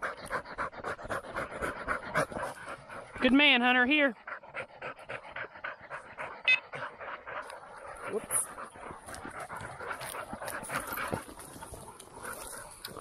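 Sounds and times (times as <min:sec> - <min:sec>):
dog panting: 0:00.0 - 0:13.0
footsteps in dry stubble: 0:07.3 - 0:13.0.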